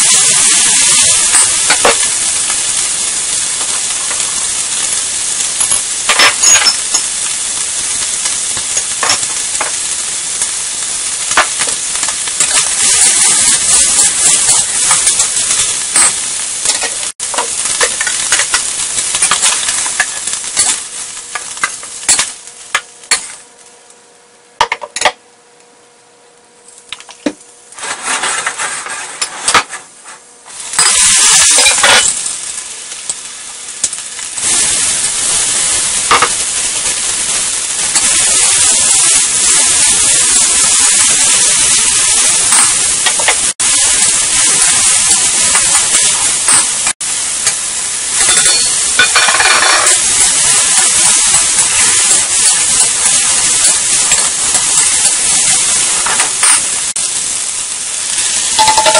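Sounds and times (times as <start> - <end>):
hot oil sizzling in wok: 0.0 - 25.7, 26.3 - 58.9
metal spatula scraping wok: 27.8 - 32.1.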